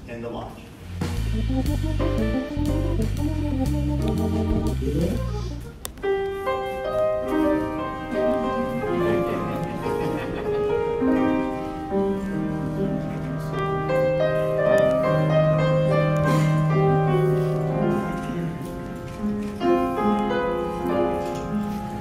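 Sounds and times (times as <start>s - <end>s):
slow keyboard chords: 1.0s - 22.0s.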